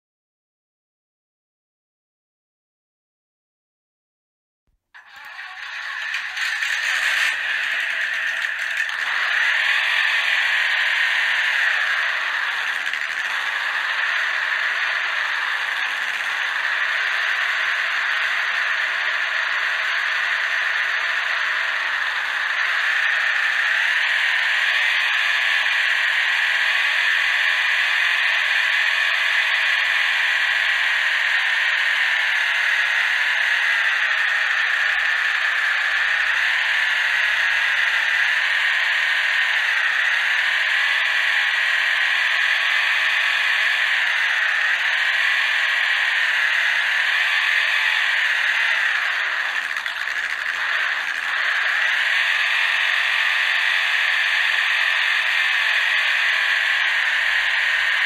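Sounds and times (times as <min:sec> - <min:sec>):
toy car electric motor whining: 0:05.0 - 0:58.0.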